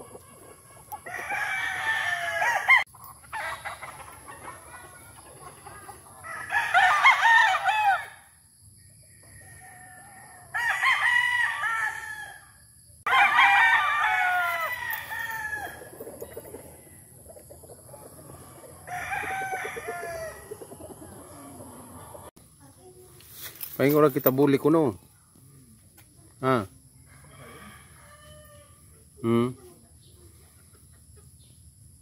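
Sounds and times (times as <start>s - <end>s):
roosters crowing: 0.0s - 8.4s, 9.1s - 22.4s, 27.0s - 28.9s.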